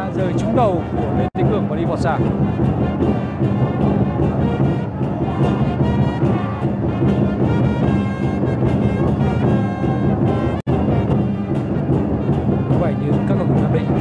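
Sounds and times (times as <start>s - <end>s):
music with held chords: 0.0s - 14.0s
steady drum beat: 0.0s - 14.0s.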